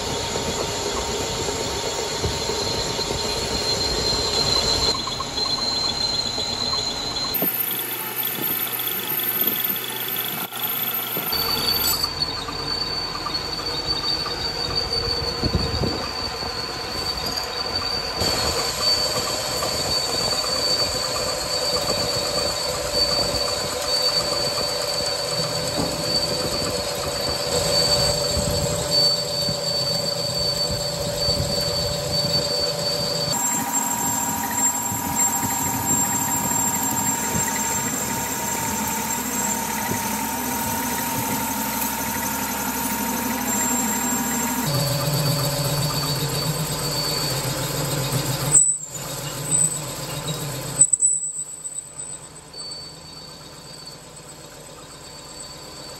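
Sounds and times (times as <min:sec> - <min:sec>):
lathe running: 0:00.0 - 0:15.2, 0:18.2 - 0:50.9
cutting tool squealing on metal: 0:00.0 - 0:55.9.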